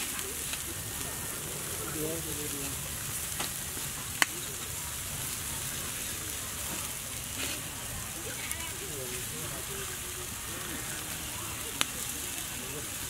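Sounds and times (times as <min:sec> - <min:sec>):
meat sizzling over a fire: 0:00.0 - 0:13.0
sharp pops: 0:03.3 - 0:04.4.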